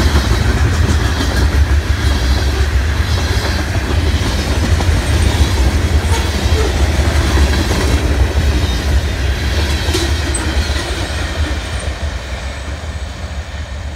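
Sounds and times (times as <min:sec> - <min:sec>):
freight train rumbling past: 0:00.0 - 0:13.9.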